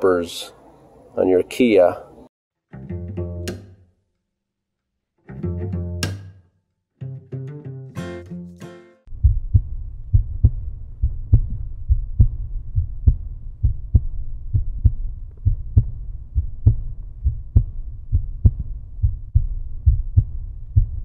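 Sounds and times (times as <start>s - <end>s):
deep bass pulse: 9.1s - 21.0s.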